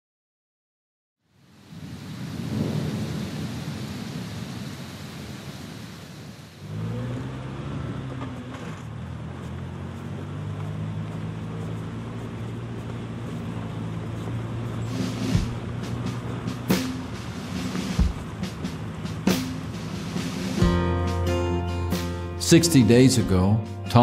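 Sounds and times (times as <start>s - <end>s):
rain hiss: 1.3s - 7.1s, 14.2s - 20.8s
rumbling thunder: 1.7s - 4.8s
car engine revving: 6.6s - 22.4s.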